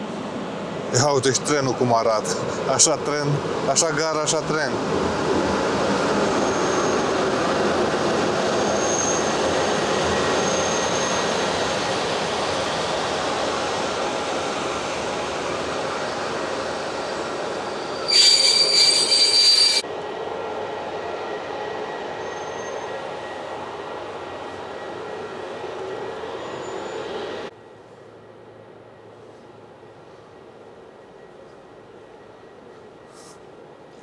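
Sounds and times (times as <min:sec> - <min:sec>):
train rumbling on tracks: 0:00.0 - 0:34.0
train wheel squeals: 0:06.3 - 0:07.4, 0:08.4 - 0:11.5, 0:15.9 - 0:19.9, 0:21.3 - 0:23.5, 0:26.0 - 0:27.5, 0:29.0 - 0:34.0
loud high-pitched squeal: 0:17.0 - 0:19.8.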